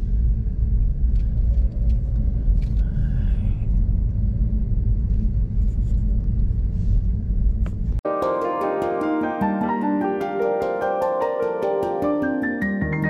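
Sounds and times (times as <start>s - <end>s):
vehicle engine and road noise: 0.0s - 8.0s.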